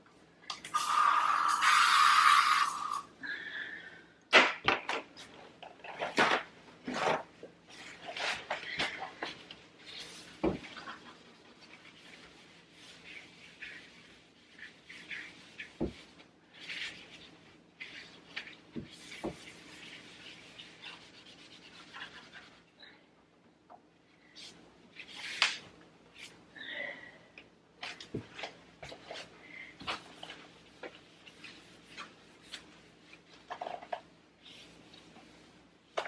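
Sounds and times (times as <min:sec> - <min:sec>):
cloth wiping surfaces: 0:09.8 - 0:22.7, 0:28.8 - 0:33.3.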